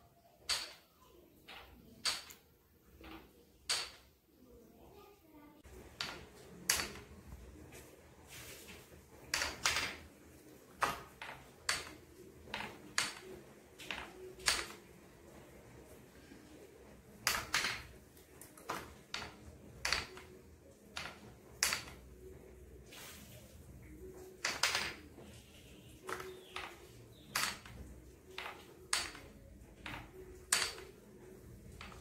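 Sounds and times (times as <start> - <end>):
wooden clicks and knocks: 0.4 - 4.1, 5.7 - 7.4, 9.2 - 15.0, 17.1 - 22.2, 24.1 - 32.0.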